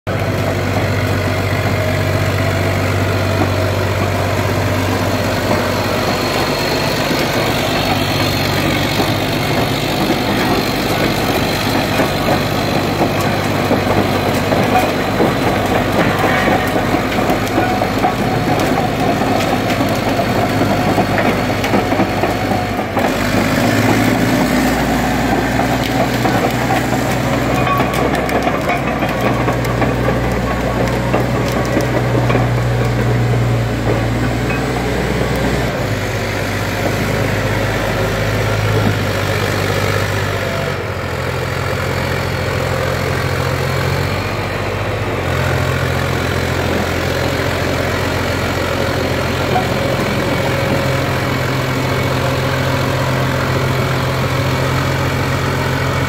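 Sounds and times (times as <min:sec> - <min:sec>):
diesel engine idling: 0:00.1 - 0:56.0.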